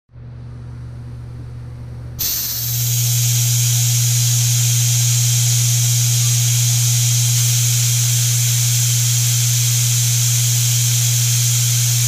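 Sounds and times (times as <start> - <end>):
coolant nozzle spraying hiss: 2.2 - 12.0
milling machine humming: 2.2 - 12.0.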